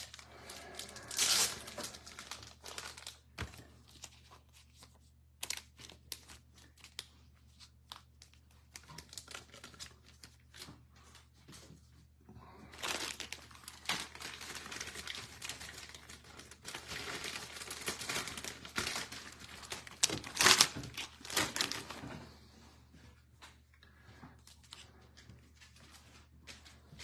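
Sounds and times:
plastic packaging crinkling: 0:00.0 - 0:11.3, 0:12.7 - 0:22.1.

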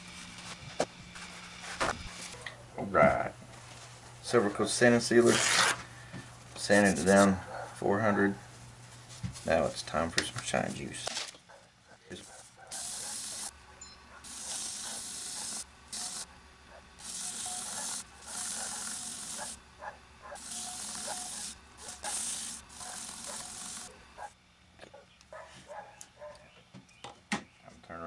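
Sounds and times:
polishing pad hissing on wood: 0:12.7 - 0:13.5, 0:14.2 - 0:16.4, 0:17.0 - 0:19.6, 0:20.3 - 0:24.3
lathe humming: 0:12.7 - 0:24.3.

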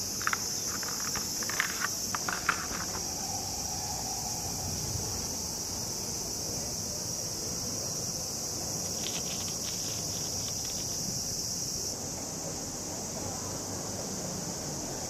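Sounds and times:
cicadas droning: 0:00.0 - 0:15.0
rapid clicking: 0:08.9 - 0:11.1.

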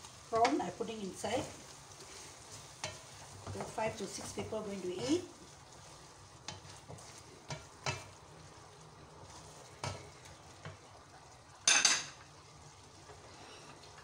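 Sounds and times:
faint sizzle: 0:00.0 - 0:14.0
wooden spoon scraping pan: 0:00.3 - 0:08.2
spoon knocking in pan: 0:06.4 - 0:08.2.

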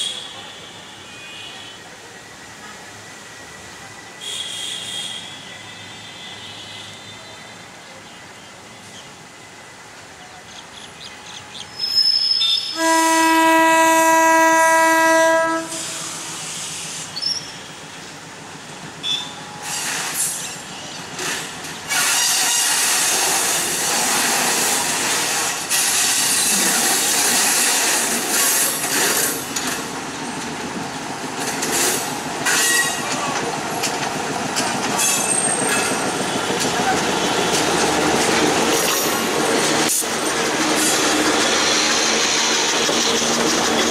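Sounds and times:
high wheel squeals: 0:11.6 - 0:12.8, 0:35.0 - 0:36.4
locomotive horn blast: 0:12.5 - 0:16.6
train wheels clattering: 0:25.7 - 0:43.9.

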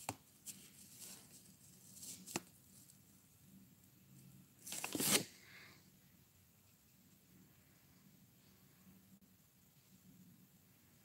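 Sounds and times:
handling rustle: 0:00.0 - 0:02.9, 0:04.6 - 0:05.4.

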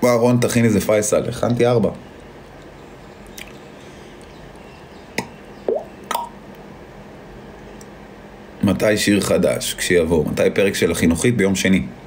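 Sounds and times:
low room hum: 0:00.0 - 0:12.0
mouth clicks: 0:05.2 - 0:06.4.

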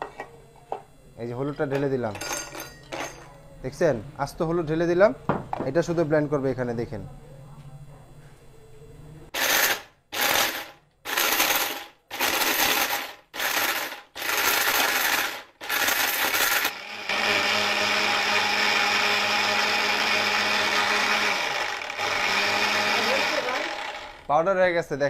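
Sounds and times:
mixer grinder grinding: 0:09.4 - 0:24.4.

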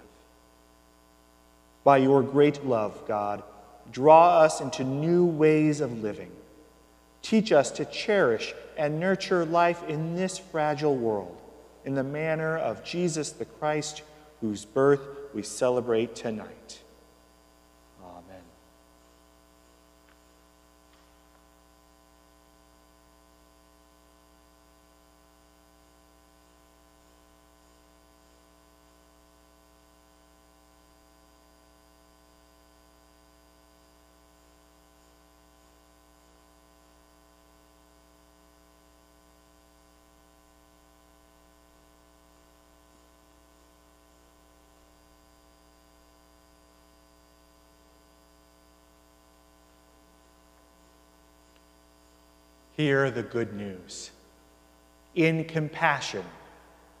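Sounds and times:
faint electrical mains hum: 0:00.0 - 0:57.0.

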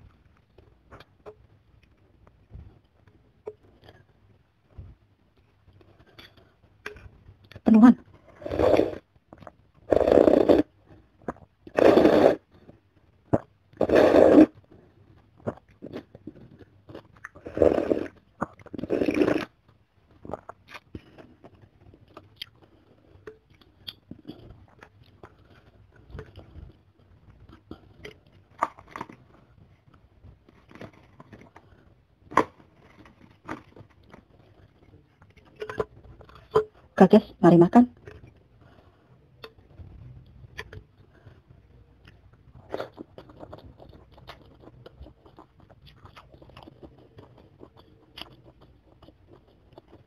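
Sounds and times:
chewing: 0:05.4 - 0:36.8, 0:38.0 - 0:50.0
loud noodle slurping: 0:08.4 - 0:09.0, 0:09.9 - 0:10.7, 0:11.7 - 0:12.5, 0:13.8 - 0:14.6, 0:17.4 - 0:19.5.

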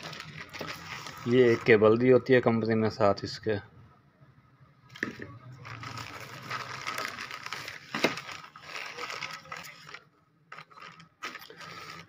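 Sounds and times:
plastic bags crinkling: 0:00.0 - 0:02.1, 0:05.6 - 0:12.0.

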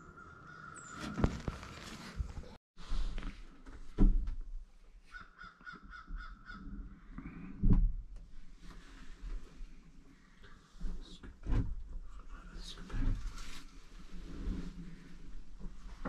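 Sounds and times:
harsh crow-like calls: 0:00.2 - 0:01.3, 0:05.1 - 0:07.2.

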